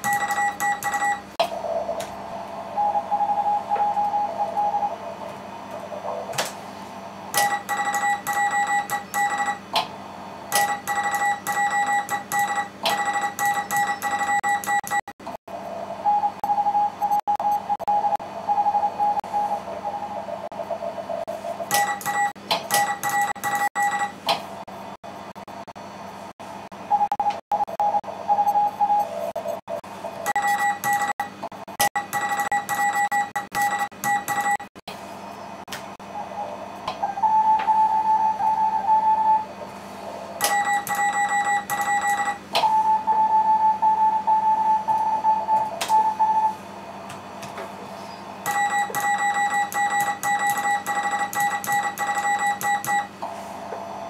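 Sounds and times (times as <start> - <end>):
morse code beeping tones: 0.0 - 1.3, 7.4 - 9.6, 10.5 - 15.1, 21.7 - 24.2, 30.3 - 34.7, 40.4 - 46.6, 48.4 - 53.1.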